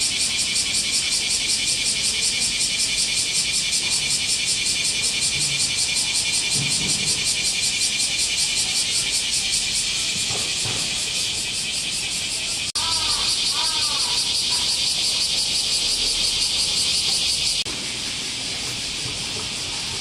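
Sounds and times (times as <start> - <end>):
cicadas droning: 0.0 - 20.0.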